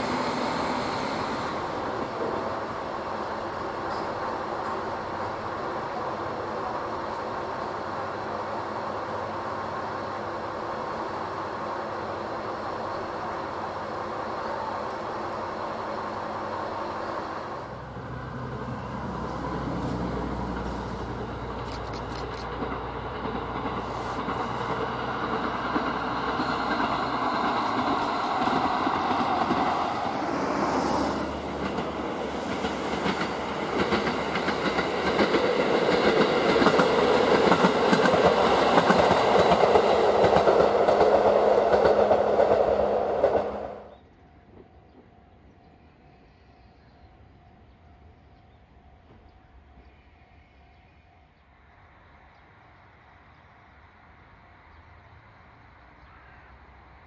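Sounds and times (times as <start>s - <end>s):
diesel train running: 0.0s - 57.0s
wheels clicking over rail joints: 20.4s - 30.2s, 31.2s - 43.6s.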